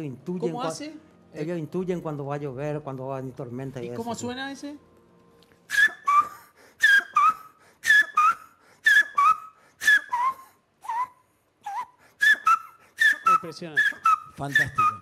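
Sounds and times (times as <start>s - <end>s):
man whistling bird call: 5.7s - 15.0s
two-note whistle: 5.7s - 15.0s.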